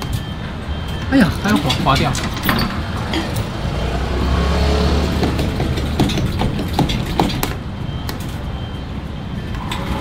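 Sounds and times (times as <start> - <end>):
claw clicking and knocking: 5.1 - 7.6.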